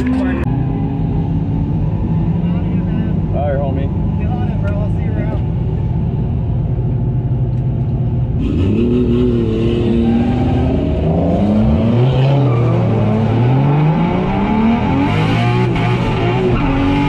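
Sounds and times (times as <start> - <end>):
car engine revving: 8.2 - 17.0.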